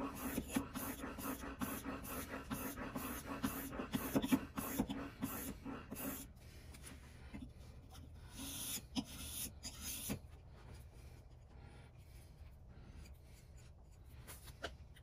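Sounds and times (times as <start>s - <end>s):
blade scraping on whetstone: 0.0s - 6.3s.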